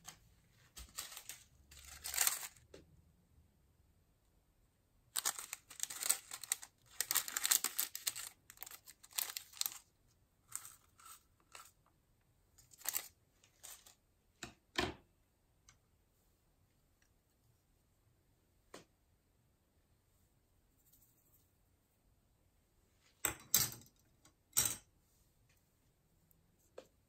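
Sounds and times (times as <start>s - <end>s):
plastic bag crinkling: 0.8s - 2.6s, 5.2s - 9.9s, 12.7s - 14.0s.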